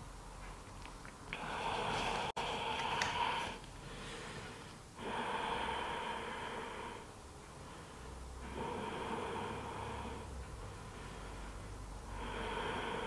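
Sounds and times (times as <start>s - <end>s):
woman breathing slowly: 1.3s - 13.0s.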